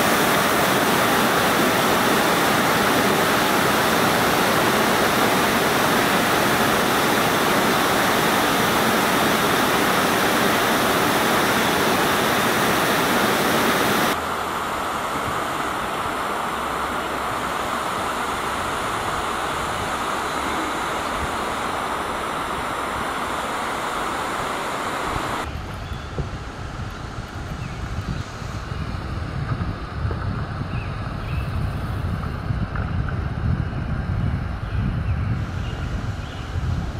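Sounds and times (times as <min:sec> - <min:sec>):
waterfall rushing: 0:00.0 - 0:25.6
water and outdoor hiss: 0:00.0 - 0:36.9
wind buffeting microphone: 0:00.0 - 0:36.9.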